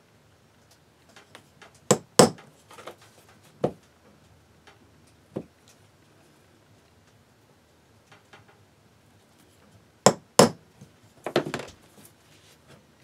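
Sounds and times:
hammer striking centre punch: 0:10.1 - 0:10.6.

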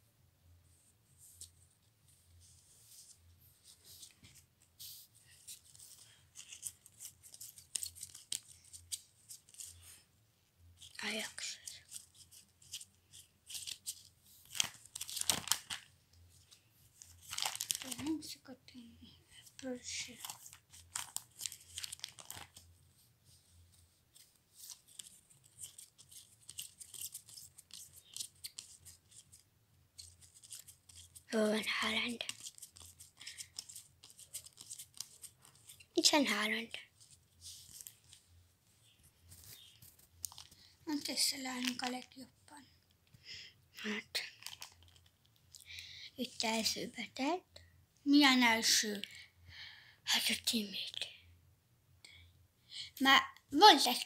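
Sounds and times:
trading cards flicking and rustling: 0:03.0 - 0:09.9, 0:10.8 - 0:18.3, 0:19.4 - 0:22.7, 0:24.1 - 0:29.4, 0:30.0 - 0:36.2, 0:38.8 - 0:42.2.

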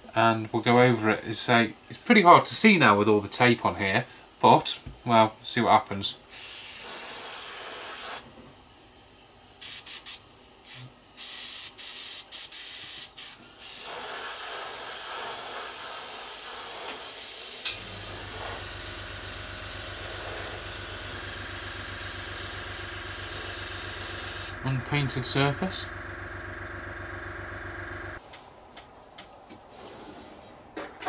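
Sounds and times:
airbrush spraying hiss: 0:06.3 - 0:08.3, 0:09.6 - 0:24.6.

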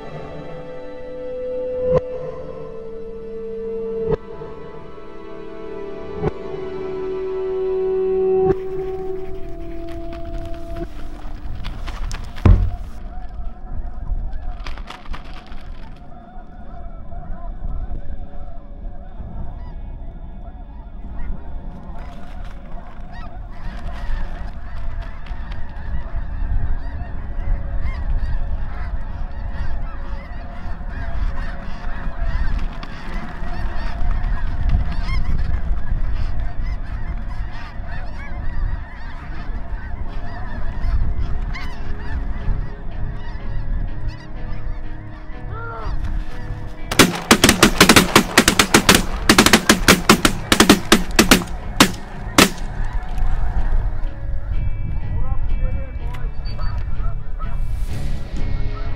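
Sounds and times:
geese honking: 0:00.0 - 0:13.7, 0:14.3 - 0:54.1
shotgun shots: 0:12.5 - 0:13.0, 0:46.9 - 0:52.8.

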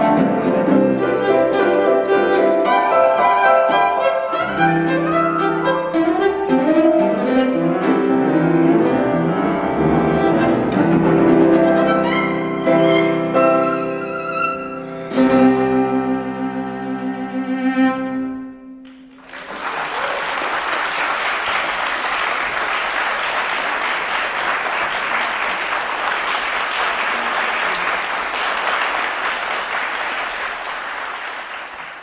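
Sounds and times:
cello and piano chord: 0:00.0 - 0:19.1
audience applause: 0:18.9 - 0:32.0.

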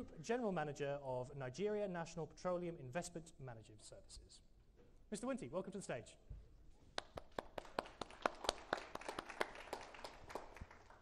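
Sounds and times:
audience applause: 0:07.1 - 0:11.0.

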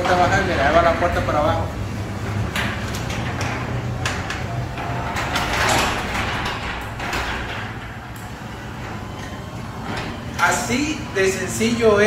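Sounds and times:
garage door opener motor hum: 0:00.0 - 0:12.0
garage door panels rattling: 0:00.0 - 0:12.0.

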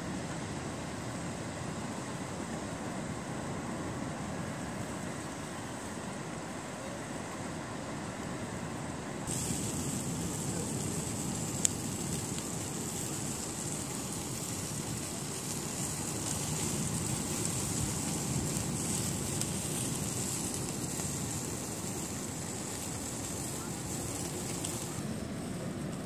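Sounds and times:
sea surf: 0:00.0 - 0:26.0
sausages sizzling: 0:09.3 - 0:26.0
wind rumble on microphone: 0:09.3 - 0:26.0.

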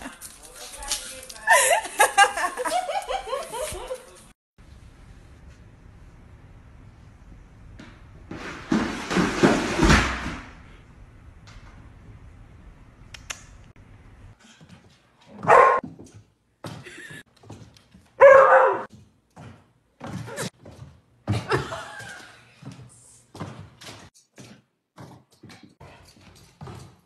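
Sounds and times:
knocks and thumps on hard floor: 0:08.3 - 0:10.5
dog barking: 0:15.4 - 0:15.8, 0:18.2 - 0:18.9.

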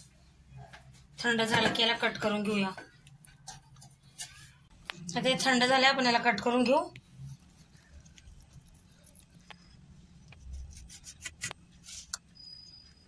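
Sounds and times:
knife scraping: 0:07.8 - 0:12.8.

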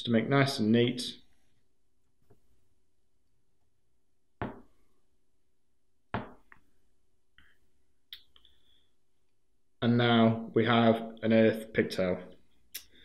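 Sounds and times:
sharp knocks on wooden table: 0:04.4 - 0:04.7, 0:06.1 - 0:06.5.

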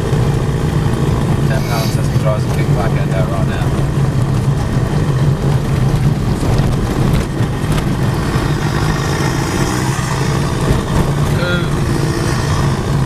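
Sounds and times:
car rumbling on gravel: 0:00.0 - 0:13.0.

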